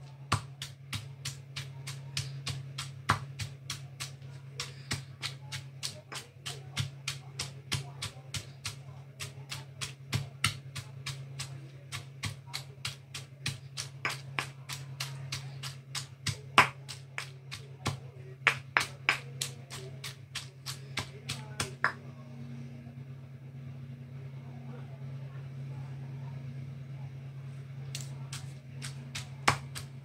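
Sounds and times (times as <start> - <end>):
steady low hum: 0.0 - 30.0
stone pestle pounding in mortar: 0.1 - 22.0, 28.0 - 30.0.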